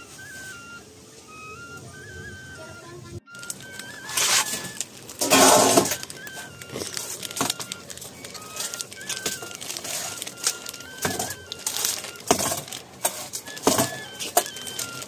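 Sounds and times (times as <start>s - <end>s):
hands kneading dough in metal basin: 3.4s - 15.0s.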